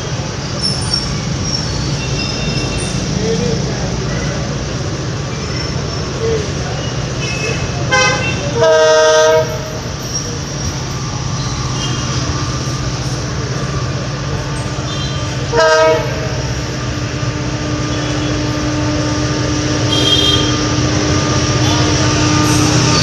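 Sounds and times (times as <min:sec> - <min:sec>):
diesel engine rumble: 0:00.0 - 0:23.0
two-tone locomotive horn: 0:07.2 - 0:09.9, 0:14.8 - 0:23.0.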